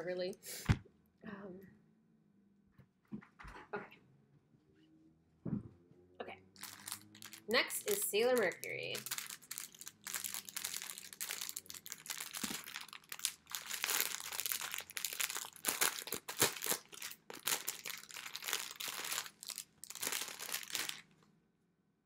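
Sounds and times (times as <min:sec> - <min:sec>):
plastic bag crinkling: 0:06.6 - 0:21.2.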